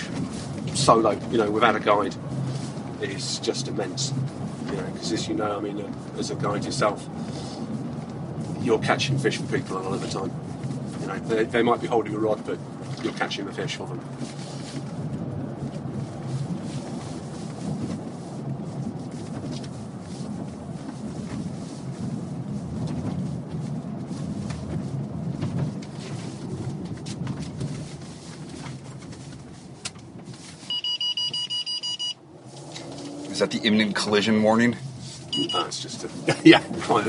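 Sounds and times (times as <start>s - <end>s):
driver speaking: 0.0s - 2.3s, 2.9s - 7.2s, 8.6s - 10.4s, 11.0s - 14.1s, 33.3s - 37.0s
car engine and tyre rumble: 0.0s - 37.0s
rapid electronic beeping: 35.3s - 35.8s.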